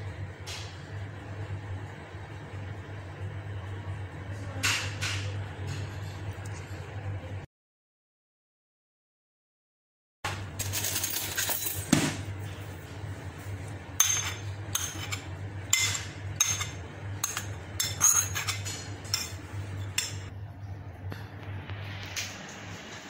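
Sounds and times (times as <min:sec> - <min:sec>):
low steady hum: 0:10.3 - 0:23.0
metal spoon scraping a bowl: 0:14.0 - 0:20.3.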